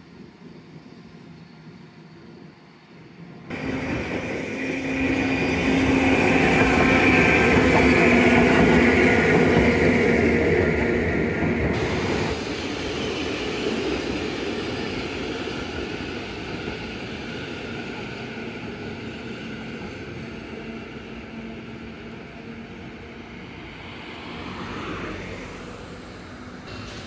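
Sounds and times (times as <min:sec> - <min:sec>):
tram rumbling: 0:00.0 - 0:27.0
road traffic: 0:03.5 - 0:16.4, 0:22.0 - 0:27.0.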